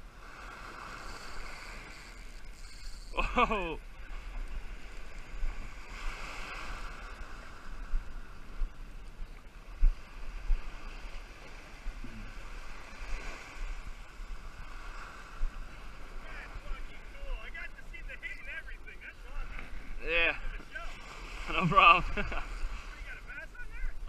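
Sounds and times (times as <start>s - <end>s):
surf waves washing onto beach: 0.0s - 24.0s
wind buffeting microphone: 3.9s - 17.2s.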